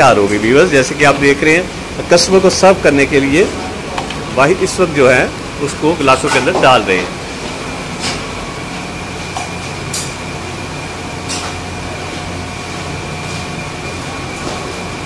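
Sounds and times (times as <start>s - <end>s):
mechanical hum: 0.0s - 15.0s.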